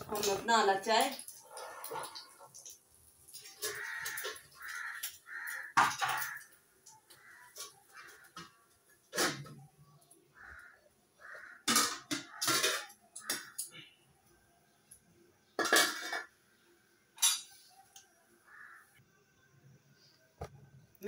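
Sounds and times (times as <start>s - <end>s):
metal pots clanking: 0.0s - 6.5s, 11.6s - 13.8s, 15.6s - 16.3s, 17.2s - 17.6s.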